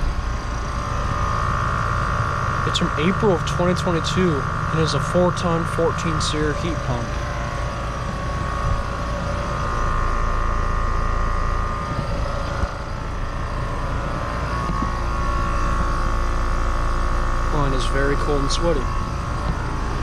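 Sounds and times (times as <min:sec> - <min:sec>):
heat pump whirring and humming: 0:00.0 - 0:20.0
steady high tone: 0:00.0 - 0:20.0.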